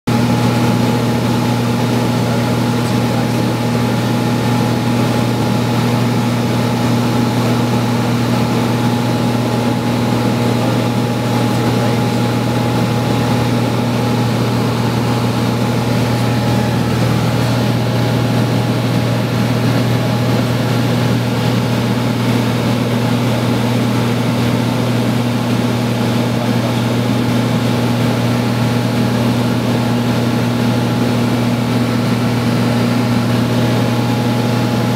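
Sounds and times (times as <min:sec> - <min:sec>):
propeller airplane engine droning: 0:00.1 - 0:34.9.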